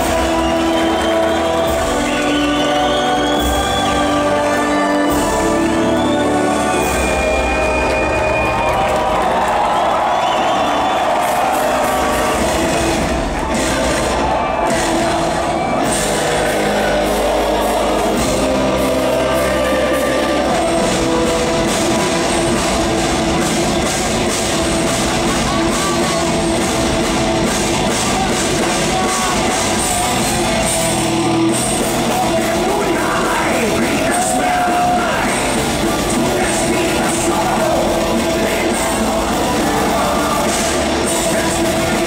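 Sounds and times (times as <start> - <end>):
drum kit: 0.0 - 42.0
live metal band playing loudly: 10.9 - 42.0.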